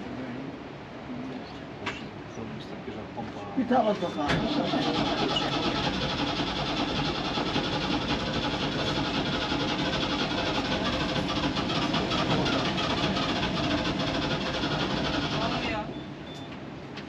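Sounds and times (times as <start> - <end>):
boat diesel engine running: 3.3 - 16.4.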